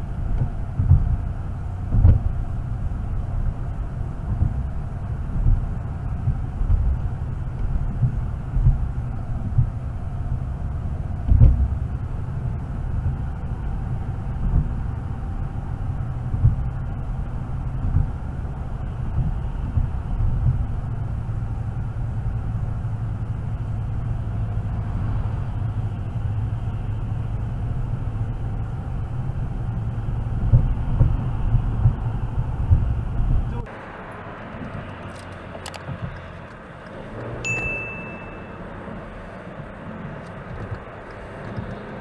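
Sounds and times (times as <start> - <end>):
car road and engine drone: 0.0 - 42.0
short thumps: 0.2 - 10.4, 11.1 - 20.8, 28.9 - 33.7.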